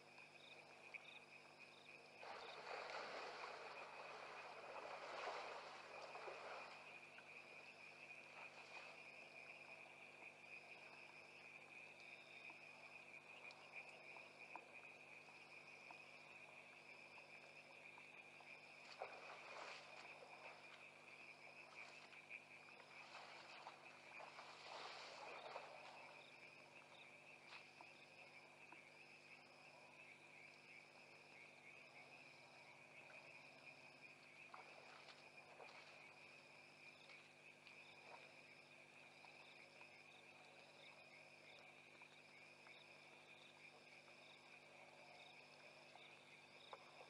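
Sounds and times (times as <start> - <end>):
cricket trill: 0.0 - 47.0
high insect chirp: 0.0 - 47.0.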